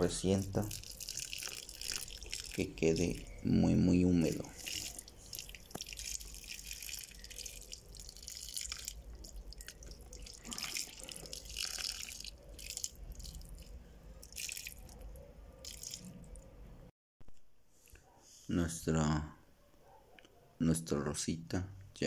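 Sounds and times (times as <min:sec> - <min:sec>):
water pouring onto gravel: 0:00.3 - 0:03.3, 0:04.2 - 0:14.9, 0:15.6 - 0:16.1.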